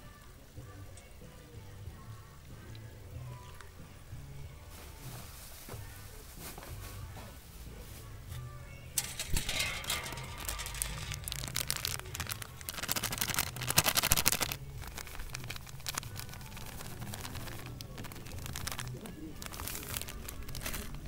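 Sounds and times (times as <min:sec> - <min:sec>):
plastic bag crinkling: 0:09.0 - 0:21.0.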